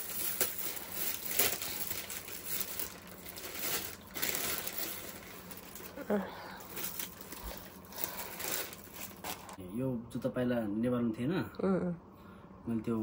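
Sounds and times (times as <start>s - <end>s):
packaging crinkling and rustling: 0.0s - 9.6s.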